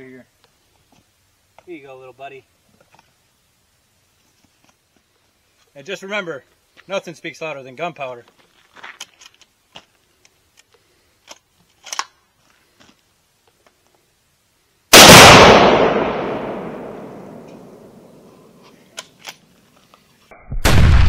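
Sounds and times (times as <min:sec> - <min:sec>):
explosion with rolling echo: 0:14.9 - 0:18.2, 0:20.5 - 0:21.0.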